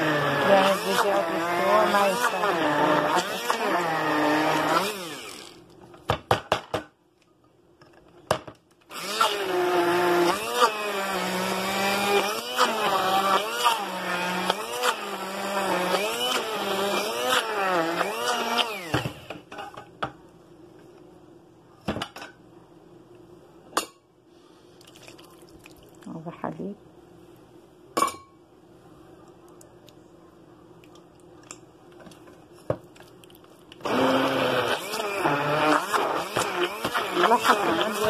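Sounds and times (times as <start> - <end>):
electric blender motor: 0.0 - 5.6, 8.9 - 19.4, 33.8 - 38.0.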